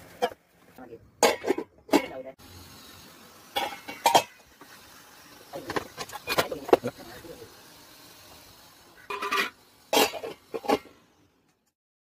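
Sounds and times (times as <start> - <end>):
pan lid clanking on pan rim: 3.5 - 4.4, 9.1 - 10.9.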